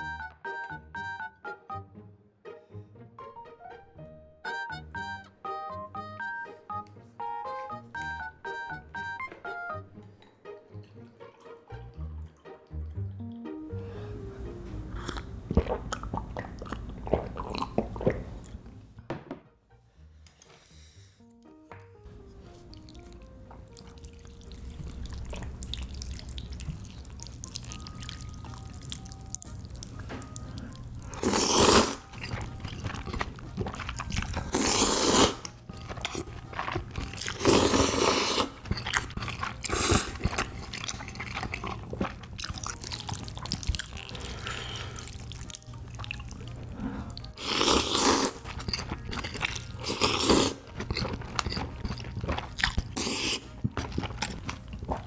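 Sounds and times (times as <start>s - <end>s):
wet chewing: 14.9s - 18.7s, 22.2s - 55.0s
slurping noodles: 29.6s - 55.0s.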